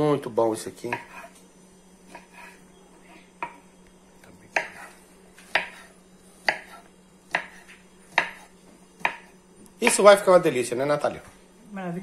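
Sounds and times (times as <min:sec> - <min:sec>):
knife chopping on wooden board: 0:00.8 - 0:01.4, 0:02.0 - 0:02.6, 0:04.5 - 0:10.2.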